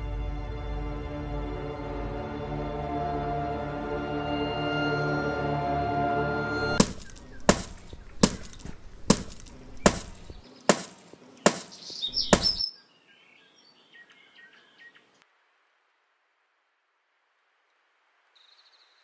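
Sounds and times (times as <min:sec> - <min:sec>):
brick striking something hard: 0:06.8 - 0:12.6
faint bird chirps: 0:11.4 - 0:15.2, 0:18.4 - 0:19.0.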